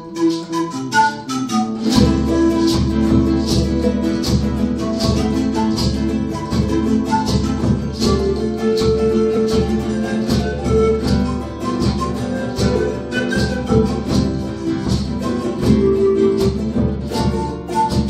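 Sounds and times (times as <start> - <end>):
nylon-string guitar: 0.0 - 18.0
strummed charango: 0.0 - 18.0
panpipes melody: 5.2 - 14.6.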